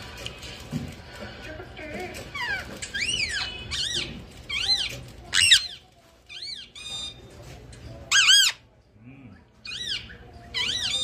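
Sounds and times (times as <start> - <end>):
parakeet squawking: 2.1 - 7.2, 8.1 - 8.7, 9.6 - 11.0.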